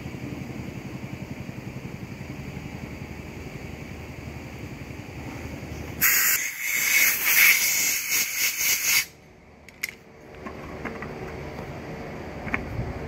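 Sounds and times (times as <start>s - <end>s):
low machine hum: 0.0s - 6.0s, 9.1s - 13.0s
hiss of blowing air: 6.0s - 9.2s.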